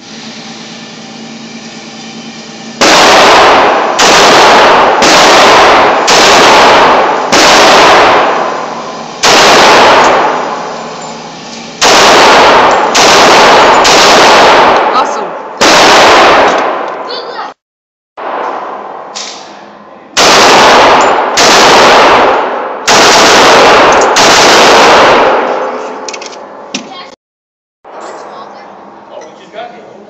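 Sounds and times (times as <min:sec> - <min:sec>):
ventilation hum: 0:00.0 - 0:17.6, 0:27.9 - 0:30.0
pistol shots echoing indoors: 0:02.8 - 0:10.7, 0:11.8 - 0:15.0, 0:15.6 - 0:17.0, 0:20.2 - 0:25.8.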